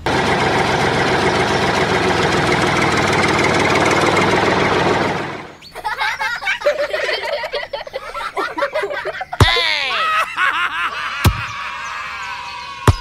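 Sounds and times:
squeaky cartoon voices chattering: 5.7 - 10.1.

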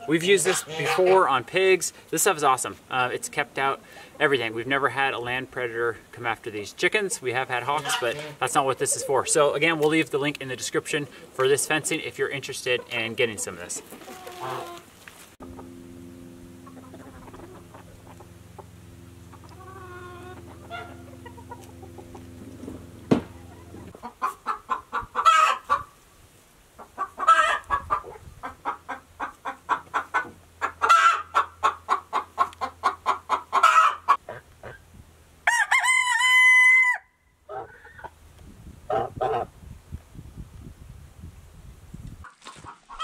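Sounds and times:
chickens clucking and squawking: 0.0 - 4.6, 7.0 - 15.8, 16.5 - 26.0, 26.7 - 38.2, 38.8 - 39.6, 42.2 - 43.0
low hum: 15.4 - 24.0
rooster crowing: 35.4 - 37.2.

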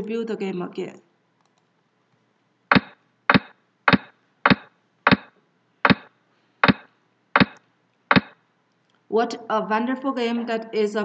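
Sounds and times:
sharp wooden clacks: 2.7 - 8.4.

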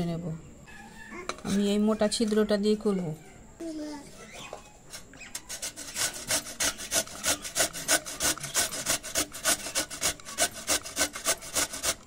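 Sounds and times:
papaya grated on box grater: 5.3 - 12.0.

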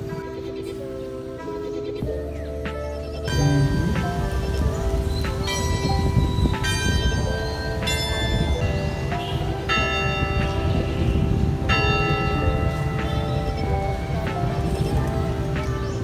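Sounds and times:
steady low music backing: 0.0 - 16.0
bell-like chimes: 3.3 - 15.0.

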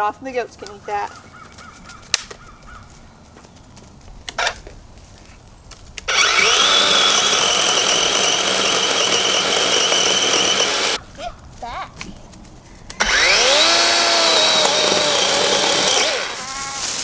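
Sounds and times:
cordless chainsaw cutting wood: 6.0 - 11.0, 13.0 - 16.4.

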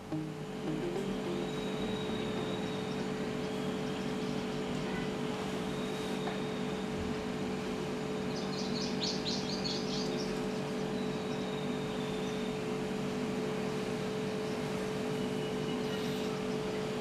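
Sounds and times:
bird chirping high notes: 0.0 - 3.2
background hum: 0.0 - 14.8.

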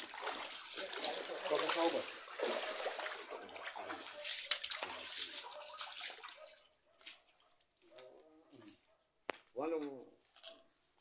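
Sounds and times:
water splashing and sloshing: 0.0 - 7.4.

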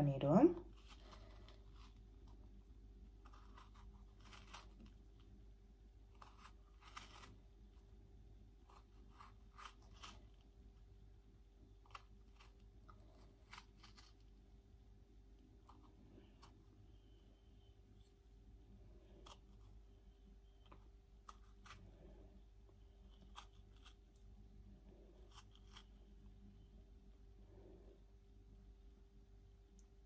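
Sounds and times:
low room hum: 0.0 - 30.0
knife cutting strawberry: 3.1 - 5.3, 6.0 - 7.6, 8.6 - 10.6, 11.7 - 14.3, 19.1 - 19.8, 20.5 - 22.1, 22.8 - 24.3, 25.2 - 26.2.

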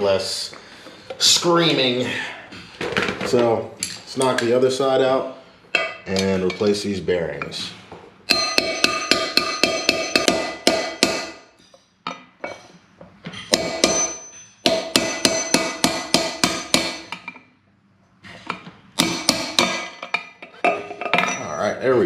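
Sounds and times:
hammer striking metal drift: 8.3 - 11.6, 13.5 - 17.2.

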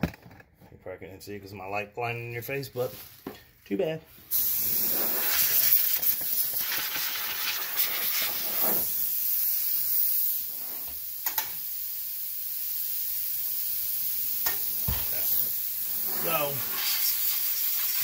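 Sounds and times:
compressed air hissing: 4.2 - 18.0
sharp click: 11.2 - 11.6.

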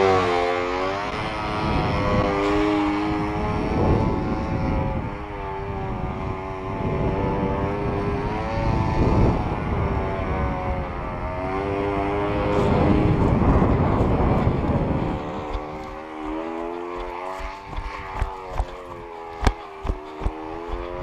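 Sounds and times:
model airplane engine buzzing: 0.0 - 21.0
rushing wind: 0.0 - 21.0
sharp thumps: 12.5 - 21.0.

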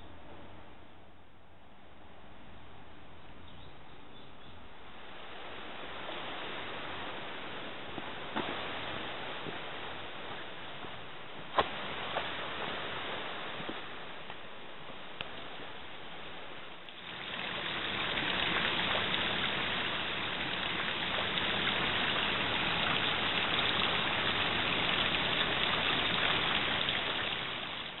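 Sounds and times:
running water hiss: 15.3 - 28.0.

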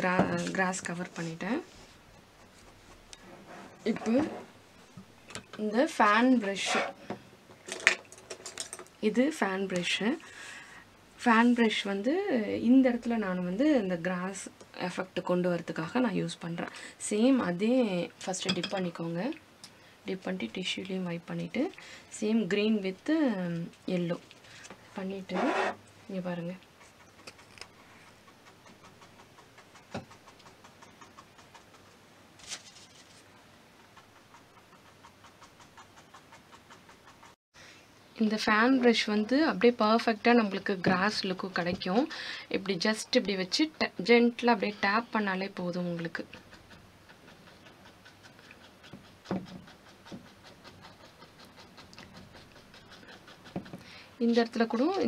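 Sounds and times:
brush tapping paint: 26.9 - 32.0
brush tapping on canvas: 48.9 - 50.3.

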